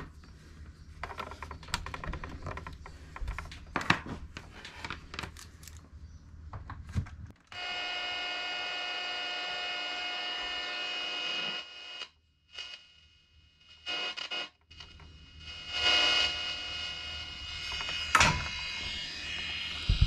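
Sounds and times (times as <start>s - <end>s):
radio buzzing hum: 7.6s - 20.0s
radio static crackle and hiss: 7.6s - 20.0s.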